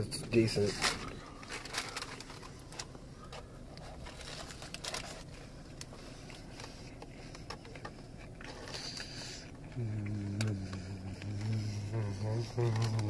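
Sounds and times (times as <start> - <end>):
wrapper crinkling: 0.0 - 3.0, 3.8 - 6.7, 11.2 - 13.0
crunchy chewing: 1.0 - 13.0.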